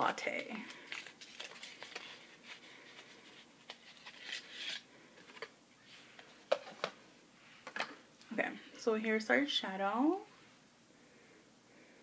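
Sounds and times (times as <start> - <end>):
packaging rustling: 0.7 - 5.6.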